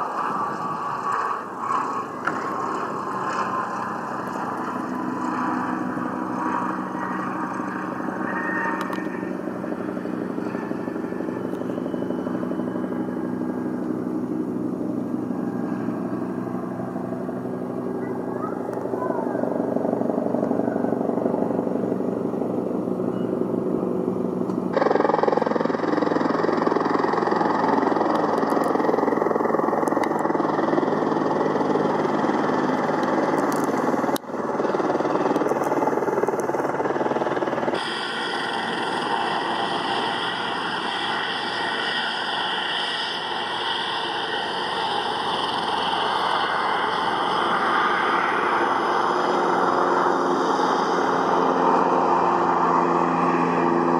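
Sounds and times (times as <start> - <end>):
light aircraft engine and propeller: 0.0 - 53.9.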